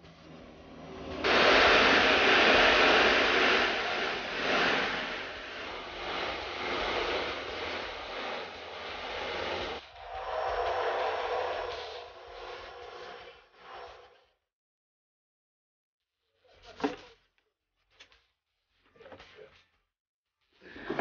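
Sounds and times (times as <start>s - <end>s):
propeller engine drone: 0.0s - 13.2s.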